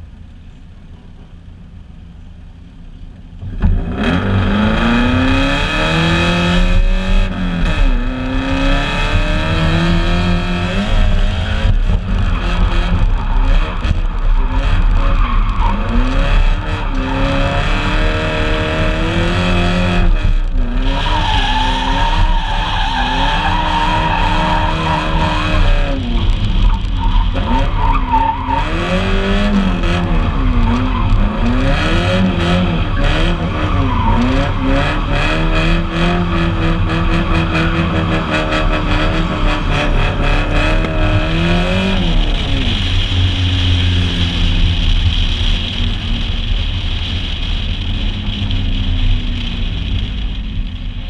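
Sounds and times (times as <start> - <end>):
car engine revving: 2.9 - 51.0
tyres squealing on pavement: 12.0 - 18.6, 20.6 - 43.5.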